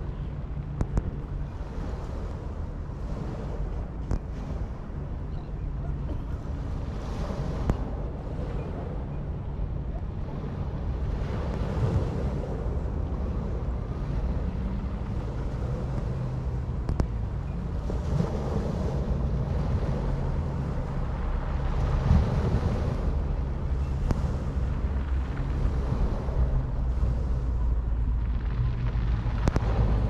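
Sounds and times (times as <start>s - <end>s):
wind rumble on microphone: 0.0s - 30.0s
waves washing onto pebble beach: 17.8s - 30.0s.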